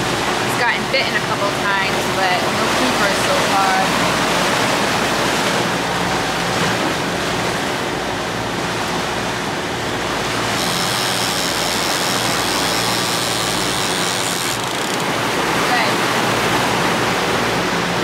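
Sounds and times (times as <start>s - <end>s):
boat engines humming: 0.0s - 18.0s
rushing wake water: 0.0s - 18.0s
wind: 0.0s - 18.0s
fishing reel clicker buzzing: 10.4s - 15.2s.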